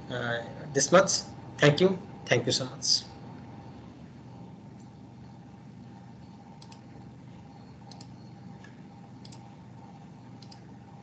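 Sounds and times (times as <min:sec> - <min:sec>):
low background hum: 0:00.0 - 0:11.0
computer mouse clicks: 0:06.6 - 0:06.9, 0:07.8 - 0:09.5, 0:10.4 - 0:10.7.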